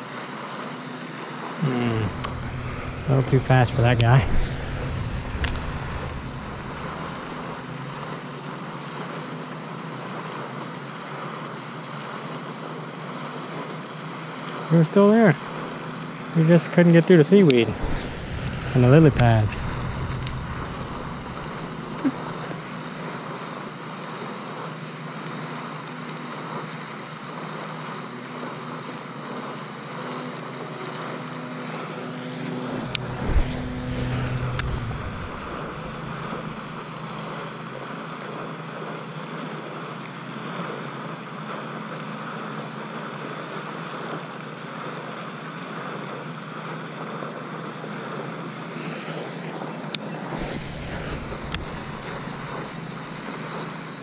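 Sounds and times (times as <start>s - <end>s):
outdoor background hiss: 1.6s - 8.4s, 16.4s - 22.9s, 32.4s - 37.1s, 50.3s - 53.8s
low thump: 2.0s - 8.0s, 17.6s - 22.6s, 32.8s - 36.8s.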